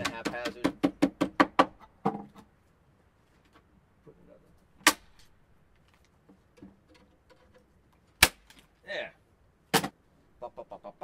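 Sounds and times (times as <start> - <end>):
faint handling noise: 5.7 - 8.8.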